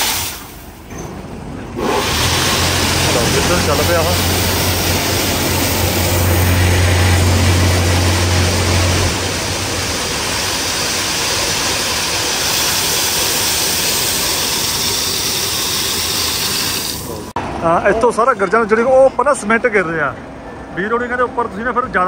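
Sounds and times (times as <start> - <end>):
batching plant machinery running: 0.0 - 18.0
low hum: 2.4 - 11.1.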